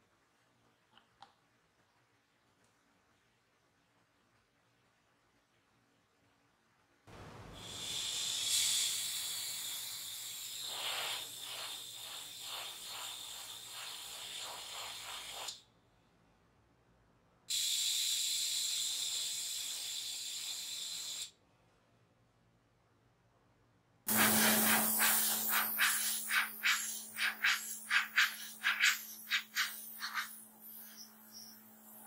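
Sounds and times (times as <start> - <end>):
airbrush spraying hiss: 7.6 - 15.6, 17.5 - 21.3, 24.1 - 32.0.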